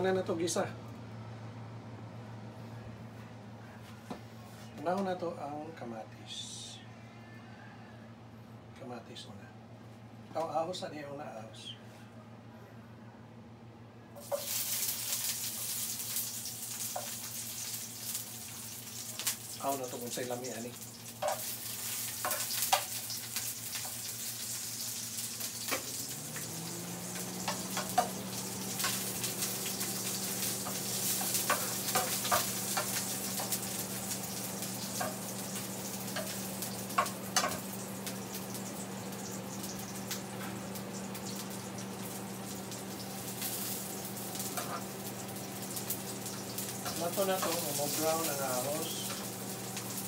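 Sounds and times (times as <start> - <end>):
low steady hum: 0.0 - 50.0
garlic sizzling in oil: 14.2 - 50.0.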